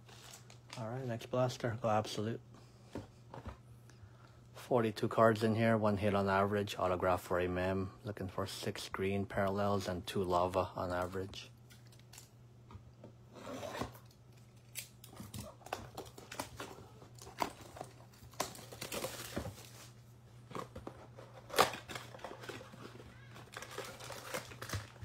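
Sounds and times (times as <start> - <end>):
cardboard tearing: 21.2 - 25.0.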